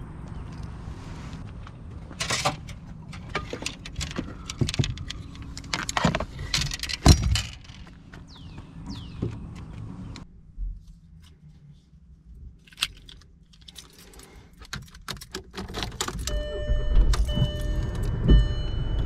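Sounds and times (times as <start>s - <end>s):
gear rattling and knocking: 2.2s - 9.8s
keys jangling: 12.7s - 16.4s.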